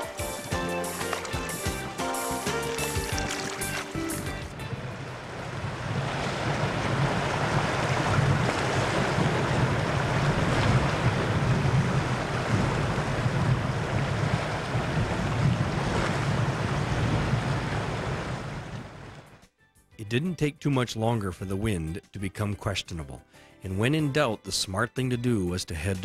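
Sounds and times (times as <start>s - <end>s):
lake waves washing: 0.0s - 19.2s
wind buffeting microphone: 4.0s - 19.3s.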